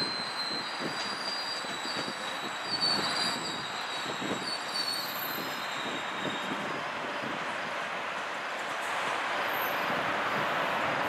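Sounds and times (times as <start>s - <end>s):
high-pitched wheel squeal: 0.0s - 7.1s, 9.5s - 10.0s
train wheels rumbling on rails: 0.0s - 11.0s.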